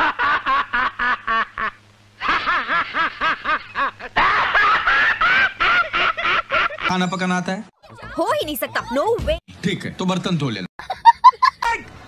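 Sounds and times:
man laughing loudly: 0.0 - 6.9, 10.8 - 11.8.

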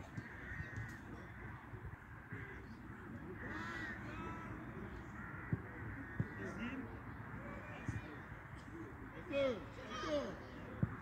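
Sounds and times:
crows cawing: 0.1 - 1.6, 3.4 - 6.8.

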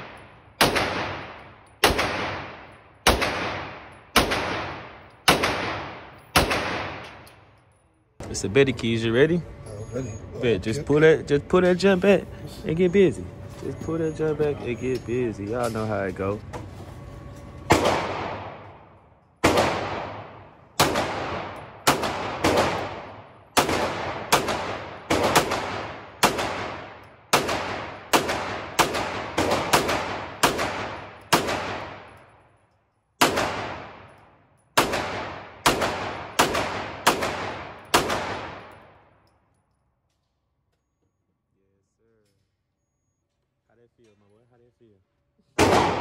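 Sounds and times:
gunshots with echo: 0.0 - 7.2, 17.7 - 32.2, 33.2 - 34.1, 34.8 - 39.0, 45.6 - 46.0.

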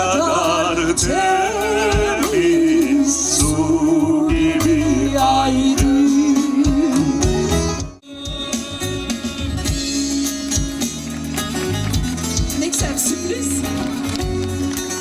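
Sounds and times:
plucked string melody: 4.4 - 15.0
drum beat: 5.8 - 14.5.

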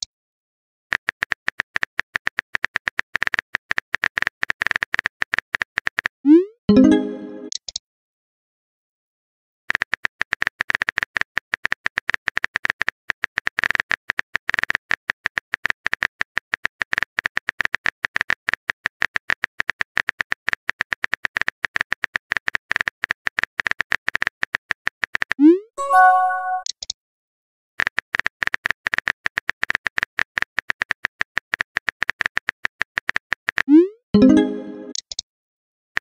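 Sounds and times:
rapid keyboard typing clicks: 9.7 - 25.4, 27.8 - 33.7.

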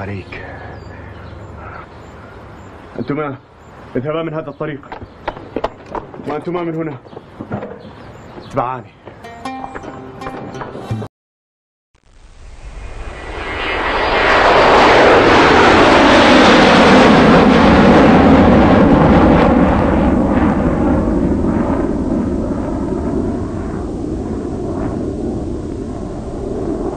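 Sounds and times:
faint whine: 12.0 - 15.2, 21.5 - 26.9
loud rushing noise: 12.2 - 17.6.

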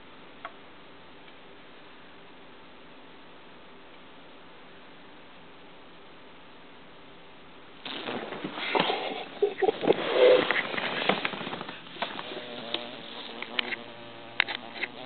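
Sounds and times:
fly buzzing: 7.8 - 15.0.

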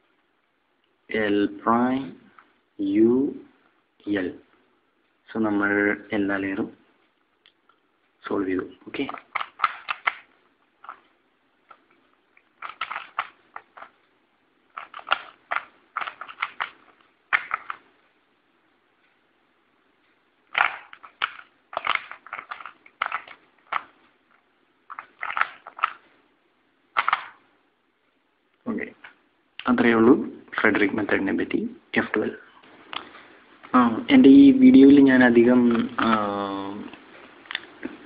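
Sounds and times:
plastic puzzle cube clacking: 9.0 - 11.0, 11.7 - 14.0, 14.7 - 17.9, 20.5 - 24.0, 24.9 - 26.1, 27.0 - 27.4.

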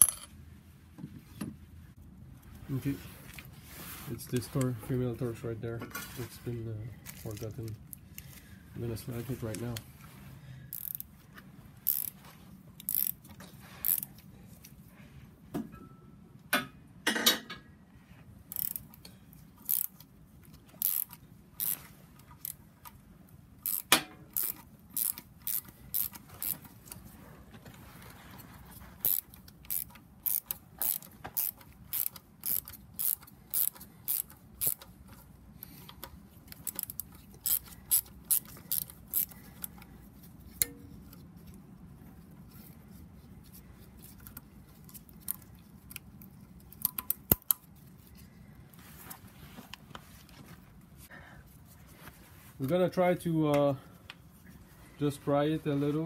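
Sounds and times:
ratchet wrench clicking: 10.7 - 11.1, 11.8 - 12.2, 12.8 - 13.2, 13.8 - 14.1, 18.5 - 19.0, 19.6 - 20.1, 20.8 - 21.8, 23.6 - 26.6, 29.0 - 34.9, 35.9 - 39.8, 46.8 - 47.6.

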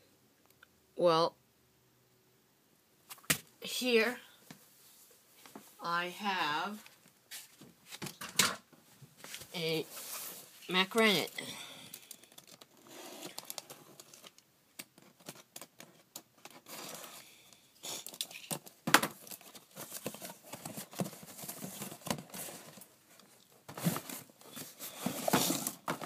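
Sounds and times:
cardboard box being handled: 19.4 - 22.9.

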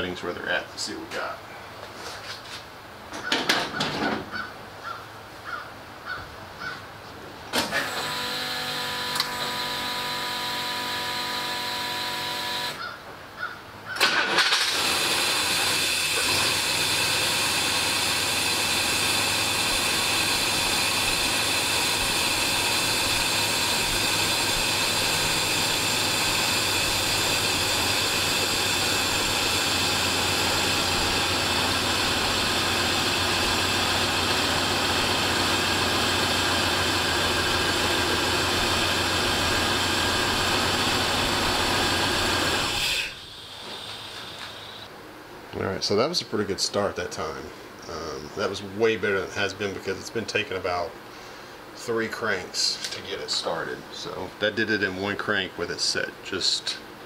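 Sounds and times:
engine cranking and running: 7.5 - 12.8, 14.0 - 44.9
fuel pump electric hum: 7.5 - 13.0, 14.0 - 45.6, 46.8 - 54.9.

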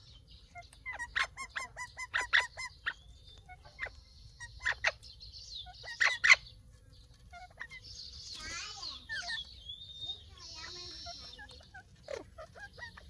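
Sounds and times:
parakeets calling: 0.0 - 13.0
harsh parakeet squawks: 0.9 - 5.0.

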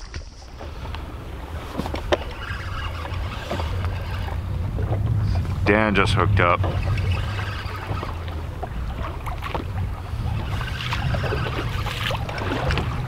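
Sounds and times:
boat engine hum: 0.0 - 13.0
water noise: 0.0 - 13.0
wind: 0.0 - 13.0.

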